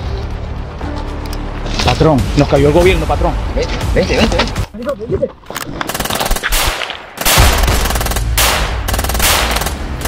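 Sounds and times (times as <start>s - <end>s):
rapid gunfire: 5.9s - 10.0s.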